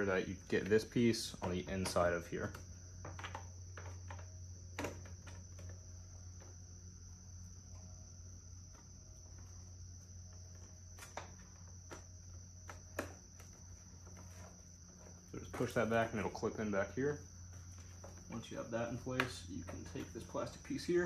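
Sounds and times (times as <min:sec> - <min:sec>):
crickets chirring: 0:00.0 - 0:21.0
low steady hum: 0:00.0 - 0:21.0
plastic bodywork clicks and knocks: 0:00.6 - 0:05.8.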